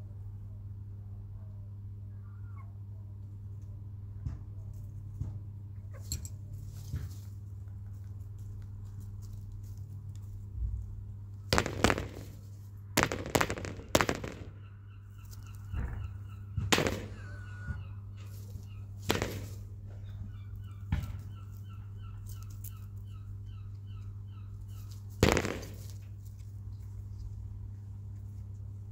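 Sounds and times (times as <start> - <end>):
chickens pecking taps: 6.7 - 10.3, 15.2 - 23.0
chicks peeping: 14.5 - 25.2.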